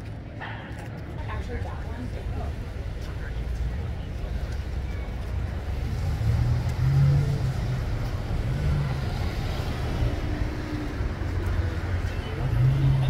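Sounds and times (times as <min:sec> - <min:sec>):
car going by: 0:02.4 - 0:13.0.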